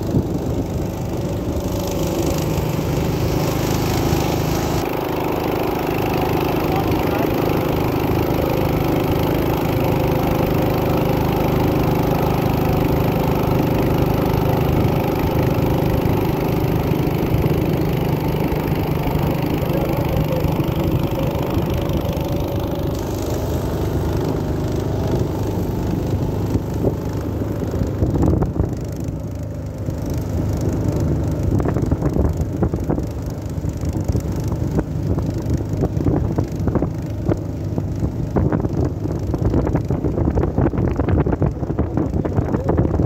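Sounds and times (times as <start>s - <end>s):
small boat engine running: 0.0s - 43.0s
wind buffeting microphone: 7.5s - 29.0s, 30.2s - 43.0s.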